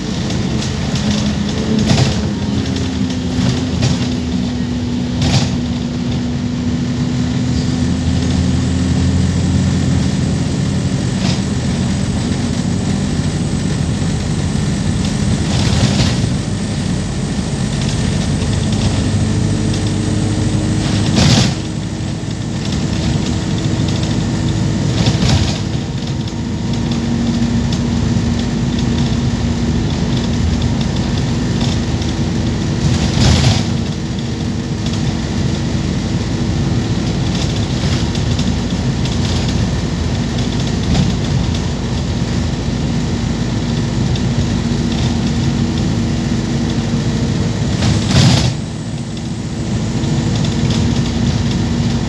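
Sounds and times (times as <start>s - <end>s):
bus engine drone: 0.0s - 52.0s
knocks and rattles: 17.6s - 27.1s.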